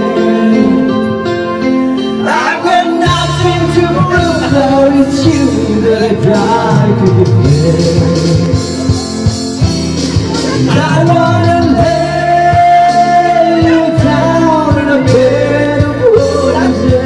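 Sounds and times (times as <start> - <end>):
person singing into a microphone: 0.0 - 17.0
recorded backing track: 0.0 - 17.0.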